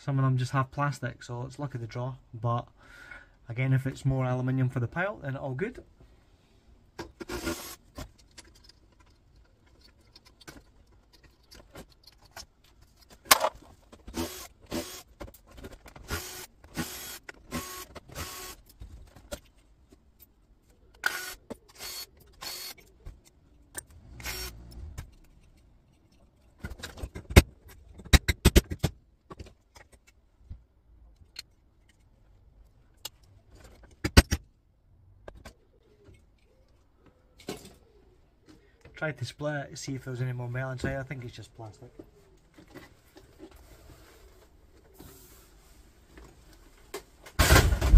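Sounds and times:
parts clattering and knocking: 6.9s - 24.0s, 24.7s - 34.6s, 35.2s - 39.0s
cordless drill running in bursts: 7.3s - 7.8s, 14.2s - 15.0s, 16.1s - 18.6s, 24.2s - 24.5s.

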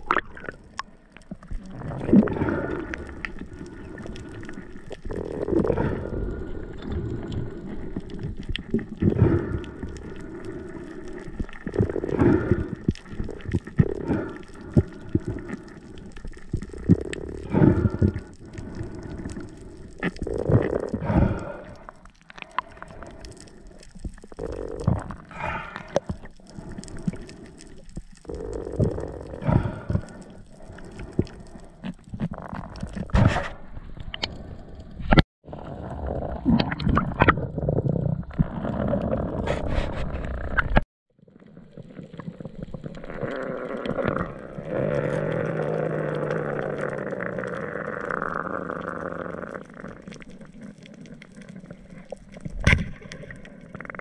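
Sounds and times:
underwater rushing: 0.0s - 40.8s.

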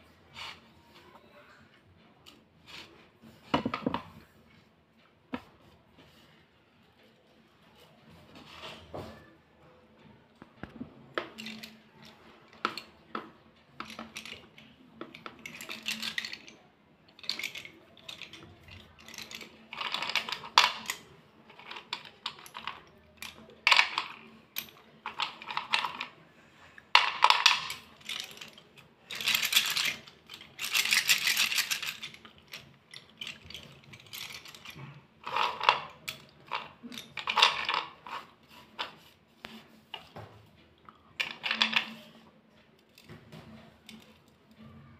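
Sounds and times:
slate pencils clicking and clattering: 2.3s - 4.3s, 10.4s - 40.2s, 40.8s - 44.7s.

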